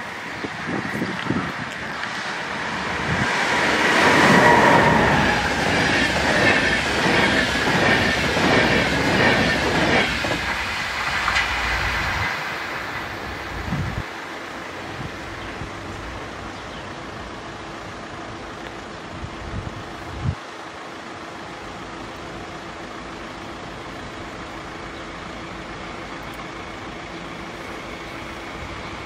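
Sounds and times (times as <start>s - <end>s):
train rushing past: 0.0s - 29.0s
wheels clattering over rails: 0.4s - 14.0s.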